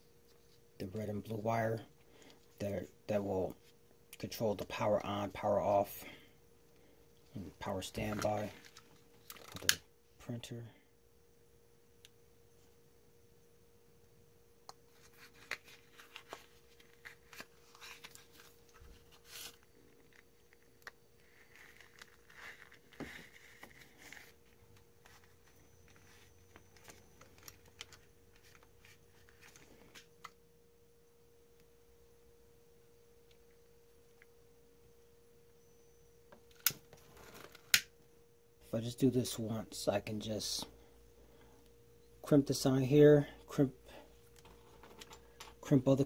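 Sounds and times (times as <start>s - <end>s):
faint steady hum: 0.0s - 46.0s
wires rustling in hands: 14.9s - 30.0s.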